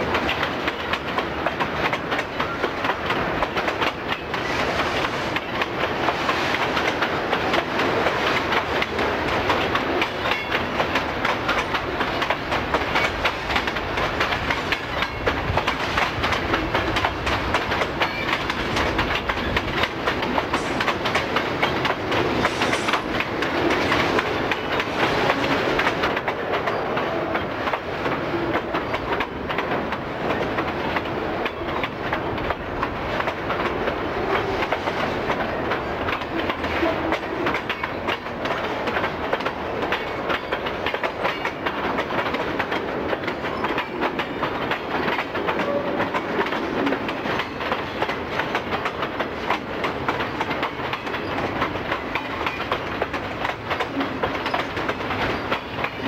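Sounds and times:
train wheels clattering on rail joints: 0.0s - 56.0s.

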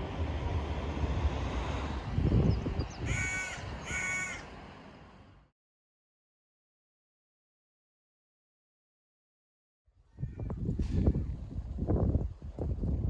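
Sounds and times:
low outdoor rumble: 0.0s - 5.5s
bird harsh calls: 2.7s - 4.5s.

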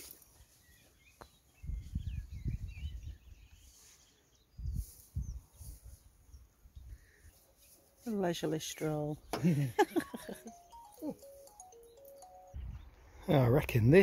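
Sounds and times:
faint bird chirps: 0.2s - 7.9s
wind buffeting microphone: 1.5s - 3.5s, 4.5s - 6.1s, 12.6s - 13.0s.

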